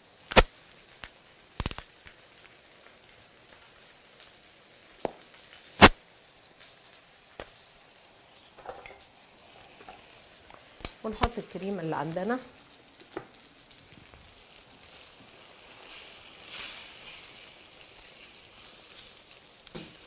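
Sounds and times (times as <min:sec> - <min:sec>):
mushrooms simmering hiss: 0:00.0 - 0:20.0
kitchen utensils clinking: 0:08.6 - 0:09.0, 0:10.8 - 0:11.6.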